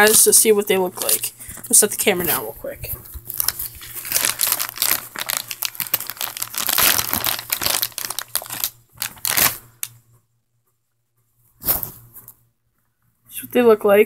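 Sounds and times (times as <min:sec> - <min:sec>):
plastic bag crinkling: 0:03.0 - 0:10.0.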